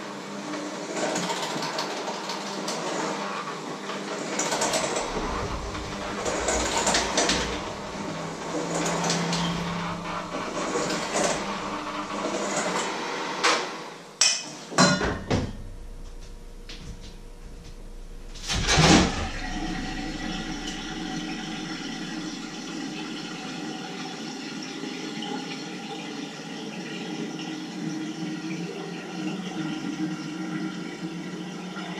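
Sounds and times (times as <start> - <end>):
kitchen tap running into sink: 4.2 - 12.9, 18.5 - 31.9
dishes and utensils knocking: 14.2 - 15.6.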